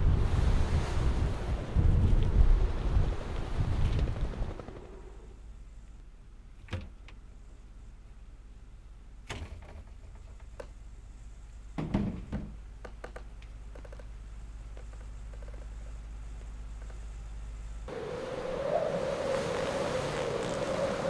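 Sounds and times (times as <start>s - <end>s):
wind on microphone: 0.0s - 4.6s, 17.9s - 21.0s
low steady hum: 0.0s - 21.0s.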